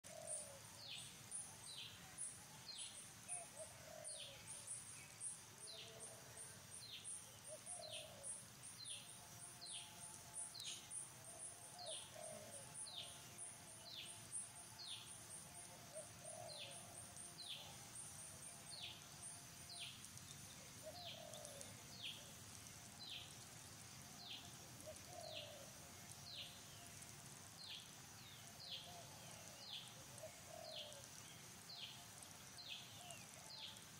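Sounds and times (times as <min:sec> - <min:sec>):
soft low cooing calls: 0:00.0 - 0:04.7, 0:07.2 - 0:08.4, 0:11.5 - 0:14.1, 0:15.6 - 0:18.0, 0:19.8 - 0:23.3, 0:24.2 - 0:33.9.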